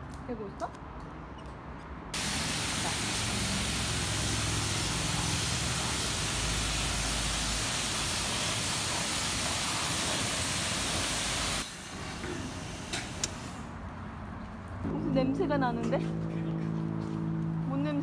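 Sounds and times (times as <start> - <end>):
high-pressure water spray: 2.2 - 13.7.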